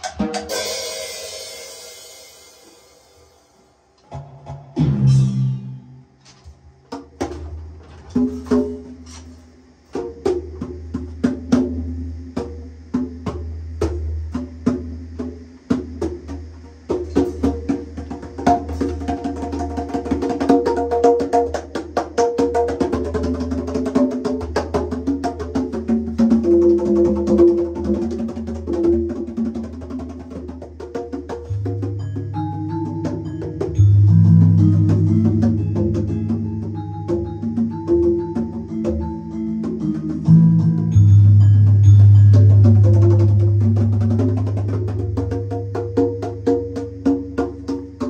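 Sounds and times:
melody: 4.8s - 6.1s, 31.4s - 45.2s
low sustained bass: 4.8s - 6.2s, 31.5s - 37.5s.

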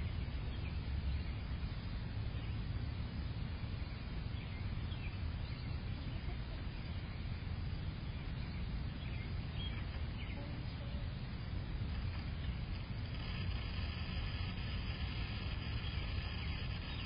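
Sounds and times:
low background rumble: 0.0s - 17.0s
faint bird chirps: 3.7s - 17.0s.

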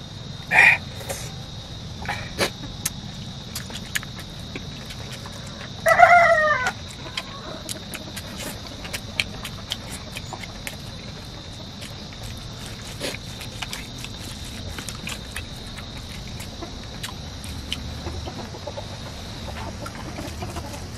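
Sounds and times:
chicken call: 0.5s - 1.3s, 5.8s - 7.8s.

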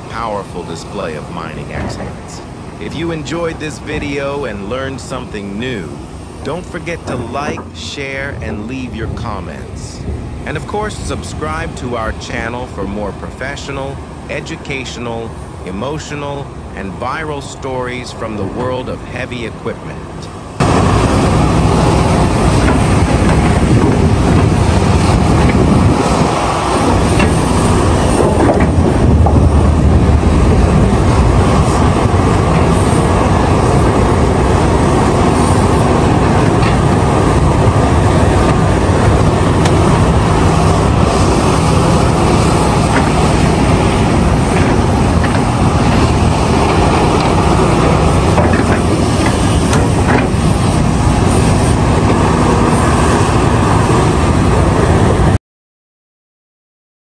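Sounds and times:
excavator diesel engine rumbling: 0.0s - 55.4s
sharp knocks: 7.0s - 7.9s.

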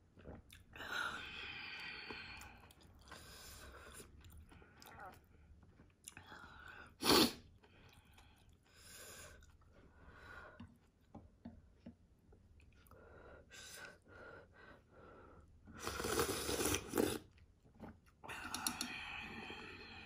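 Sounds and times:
soft chewing: 1.8s - 6.8s, 7.4s - 13.0s, 15.7s - 18.9s
loud noodle slurp: 15.8s - 17.4s.

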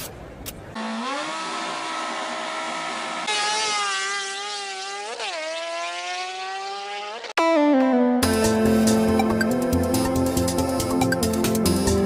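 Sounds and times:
buzzy engine-like drone: 0.8s - 7.6s.

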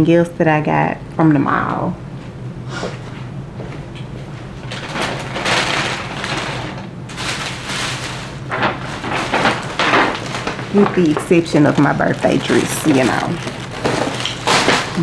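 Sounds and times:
plastic bags rustling: 4.4s - 15.0s.

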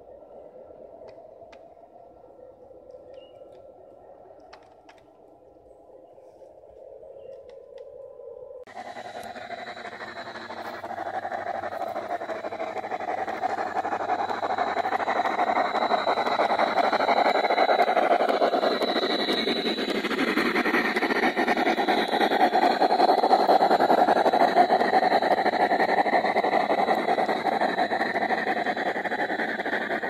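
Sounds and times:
model steam locomotive chuffing: 8.7s - 30.0s
wheels on rails: 8.7s - 30.0s.

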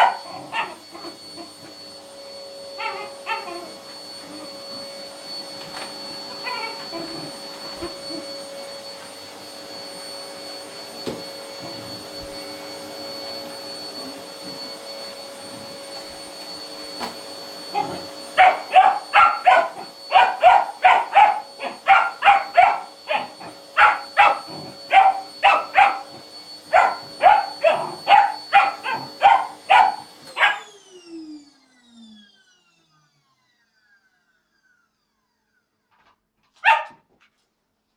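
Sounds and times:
puppy barking: 0.0s - 0.8s, 17.8s - 30.7s, 36.6s - 37.1s
vacuum cleaner running: 0.0s - 37.0s
vacuum motor winding down: 0.2s - 36.1s.

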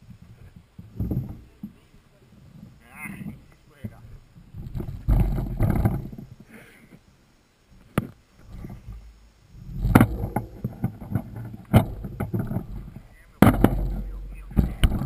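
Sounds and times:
bike rattling and scraping on rocks: 0.0s - 6.6s, 7.9s - 15.0s
sharp knocks and clatters: 2.6s - 6.3s, 7.9s - 15.0s.

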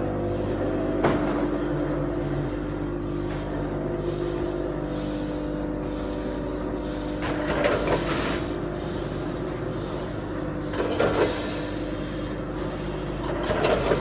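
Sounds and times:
packing machine humming: 0.0s - 14.0s
machine rattling bursts: 10.5s - 14.0s.

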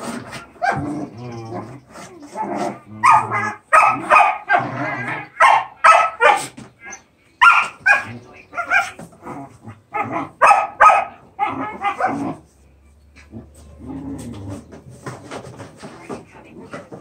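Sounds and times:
puppies barking and yipping: 0.0s - 9.2s, 9.9s - 12.4s.

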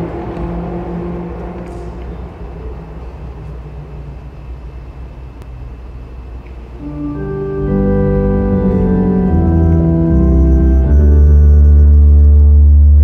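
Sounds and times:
low steady rumble: 0.0s - 13.0s
electronic keyboard organ chords: 6.6s - 13.0s.

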